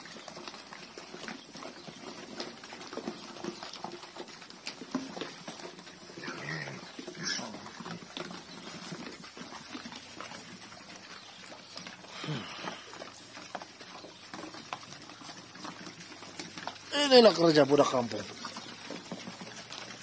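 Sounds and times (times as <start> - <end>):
pigs smacking and slurping: 0.0 - 20.0
pig grunts: 6.0 - 8.1, 12.0 - 13.2.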